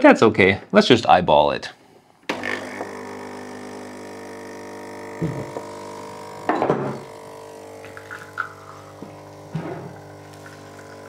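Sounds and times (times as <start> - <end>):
espresso machine pump buzzing: 2.2 - 11.0.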